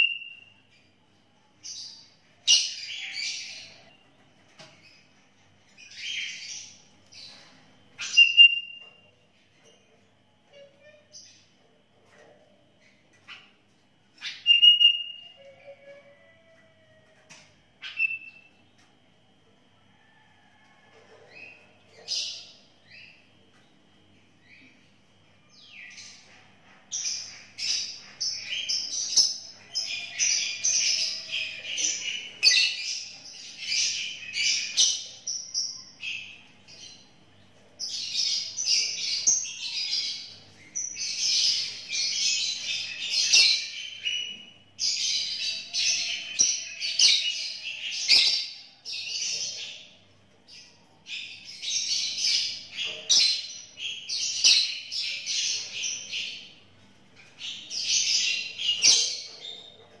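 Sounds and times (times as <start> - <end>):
bird singing whistled phrases: 14.3 - 15.3.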